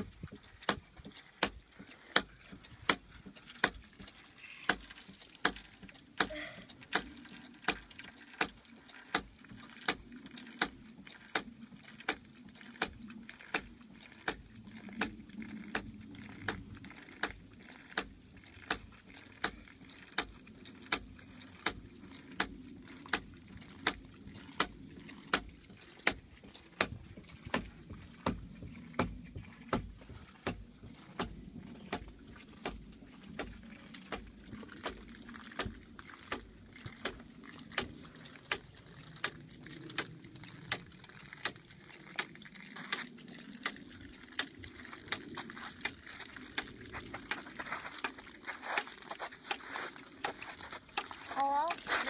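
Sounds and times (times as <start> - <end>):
running water: 0.0 - 52.0.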